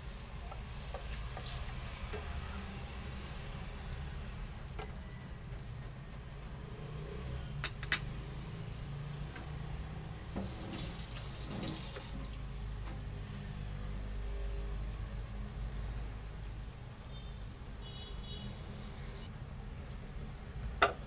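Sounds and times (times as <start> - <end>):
watery hiss: 10.4 - 12.4.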